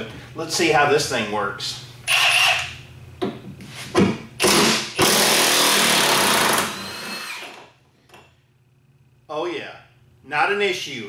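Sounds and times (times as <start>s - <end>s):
impact wrench hammering: 4.0s - 7.6s.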